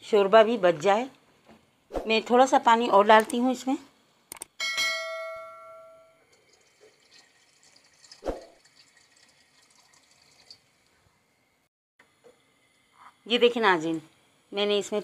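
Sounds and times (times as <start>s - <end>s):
bell chime ringing: 4.6s - 6.3s
water trickling into pot: 6.3s - 11.0s.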